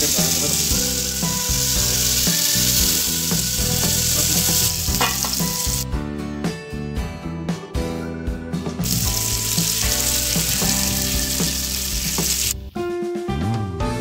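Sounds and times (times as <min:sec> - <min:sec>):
fish sizzling in oil: 0:00.0 - 0:05.8, 0:08.8 - 0:12.6
background music: 0:00.0 - 0:14.0.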